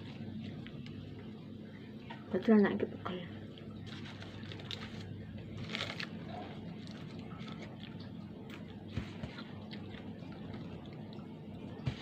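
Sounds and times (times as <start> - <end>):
steady low hum: 0.0 - 12.0
paper wrapper rustling: 3.8 - 7.8
person chewing: 5.6 - 11.2.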